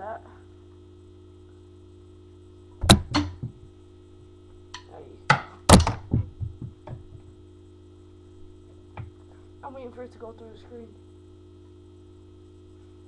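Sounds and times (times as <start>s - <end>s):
drumsticks knocking and clattering: 2.8s - 3.6s.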